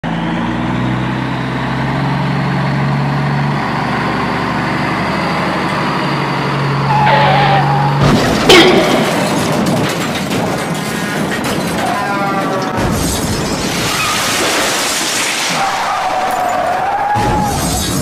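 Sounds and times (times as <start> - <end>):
vehicle engine running: 0.0 - 12.0
higher whine: 6.8 - 9.2.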